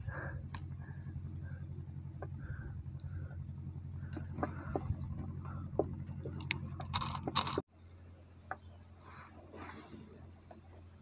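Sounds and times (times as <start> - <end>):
high insect drone: 0.0 - 11.0
fishing gear clicks and knocks: 4.2 - 7.6.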